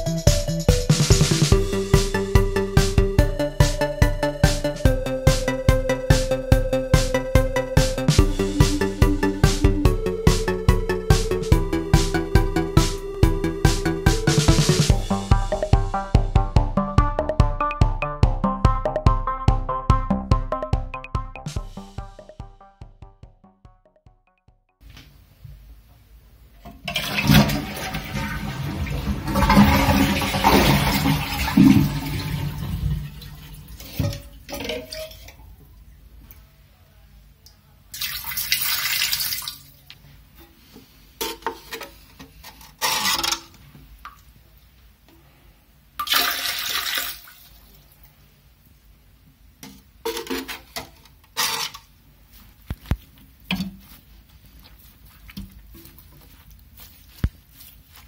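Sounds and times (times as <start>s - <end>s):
toilet flushing: 26.8s - 35.4s, 46.0s - 47.4s
water splashing into toilet bowl: 26.8s - 35.4s, 37.9s - 39.7s, 46.0s - 47.7s.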